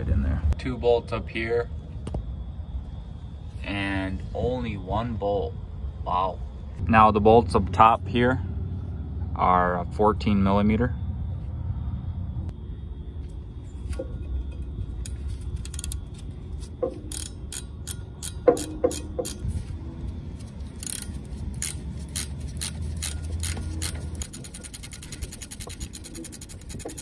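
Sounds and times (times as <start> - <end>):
ratchet wrench clicking: 15.0 - 19.4, 20.6 - 27.0.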